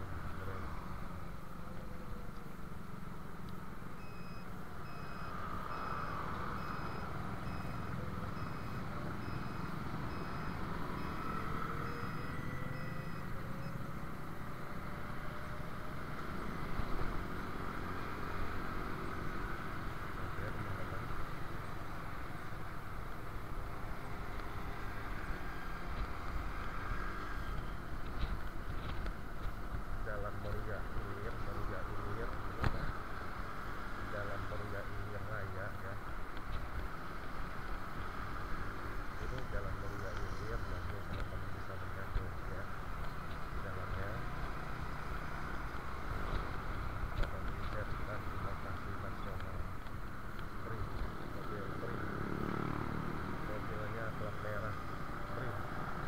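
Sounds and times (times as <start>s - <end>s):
wind and road noise: 0.0s - 56.0s
electronic beep: 4.0s - 13.9s.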